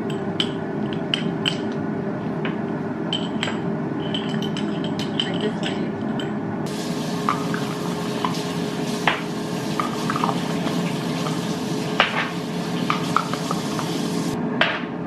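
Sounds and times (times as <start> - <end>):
glass jars and lids clinking: 3.1 - 6.4
steady rushing hiss: 6.7 - 14.4.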